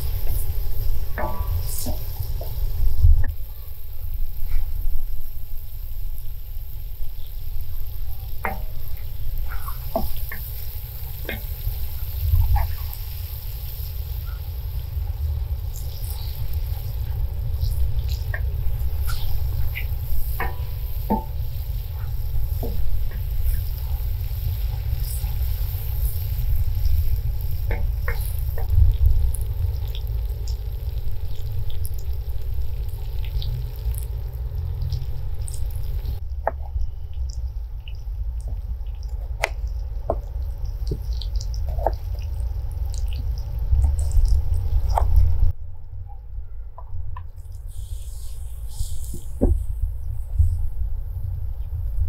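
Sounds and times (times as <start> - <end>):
food sizzling in a pan: 0.0 - 45.5, 47.5 - 52.0
low rumble: 0.0 - 52.0.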